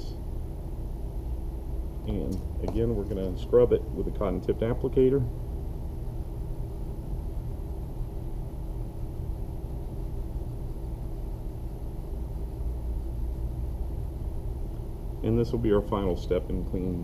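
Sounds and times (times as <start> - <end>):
low room rumble with hum: 0.0 - 17.0.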